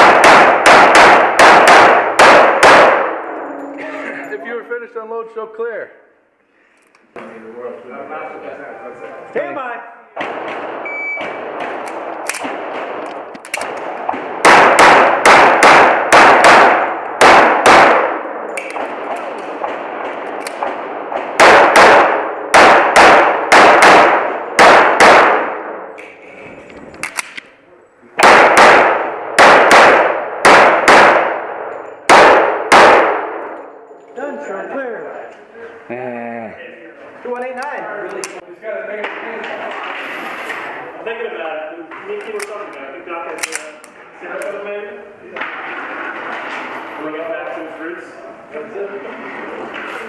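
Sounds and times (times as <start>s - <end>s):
handgun shots echoing: 0.0s - 3.4s, 10.2s - 26.2s, 27.0s - 27.5s, 28.2s - 33.8s, 42.2s - 44.6s
shot timer beep: 10.8s - 11.3s.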